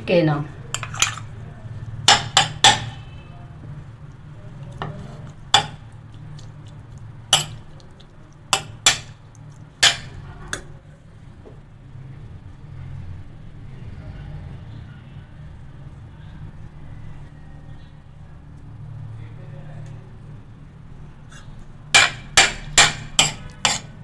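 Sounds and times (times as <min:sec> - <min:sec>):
low steady hum: 0:00.0 - 0:24.0
metal spoon clinking on steel pan: 0:02.1 - 0:03.1, 0:05.5 - 0:05.8, 0:07.3 - 0:07.6, 0:08.5 - 0:09.2, 0:09.8 - 0:10.2, 0:22.0 - 0:24.0.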